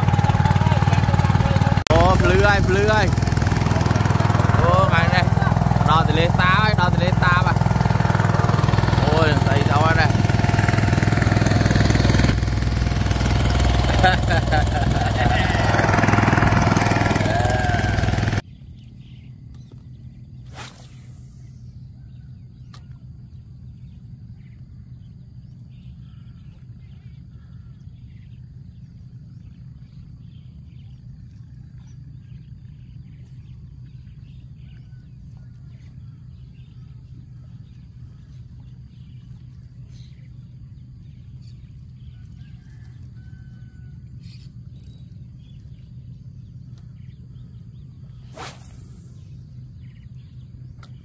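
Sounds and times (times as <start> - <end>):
steady low drone: 0.0 - 51.0
brief swish: 20.5 - 21.5, 48.3 - 49.3.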